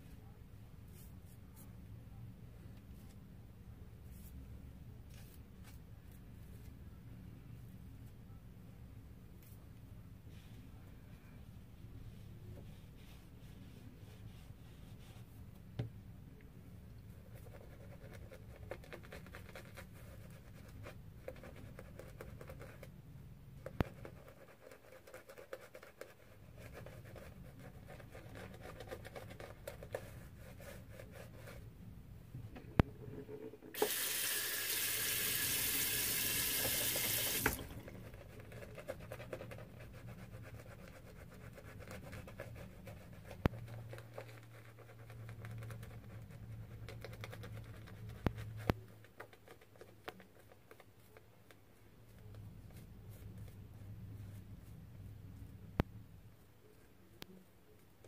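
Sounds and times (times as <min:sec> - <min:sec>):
water tap running: 0:33.7 - 0:37.9.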